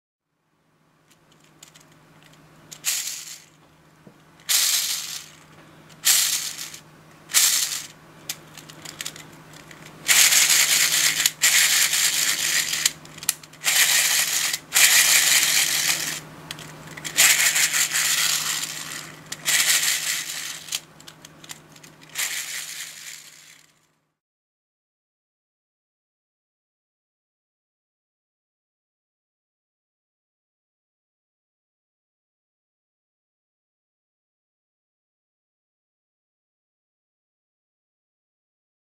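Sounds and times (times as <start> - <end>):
plastic gears rattling: 1.1 - 3.6, 4.4 - 23.8.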